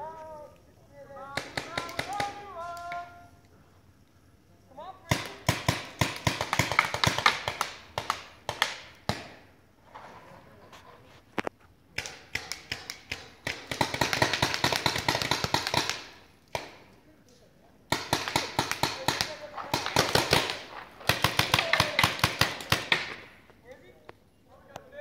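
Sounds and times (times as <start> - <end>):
paintball markers firing: 1.3 - 3.1, 5.1 - 9.5, 11.9 - 17.0, 17.9 - 23.6.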